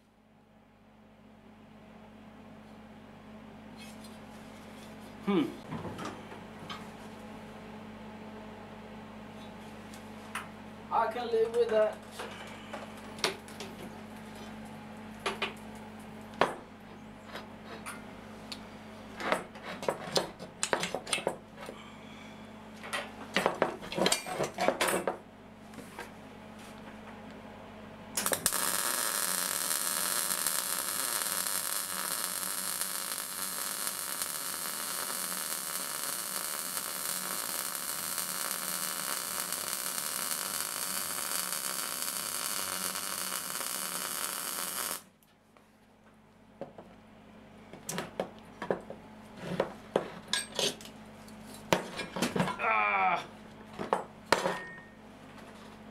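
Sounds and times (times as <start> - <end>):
welding arc hissing: 28.2 - 45.1.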